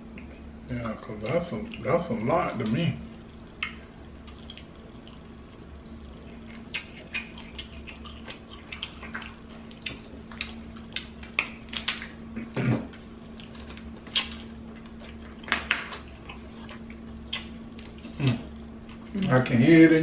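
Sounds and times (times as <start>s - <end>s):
wet chewing and smacking: 3.5s - 19.5s
crab shells cracking: 6.4s - 12.2s.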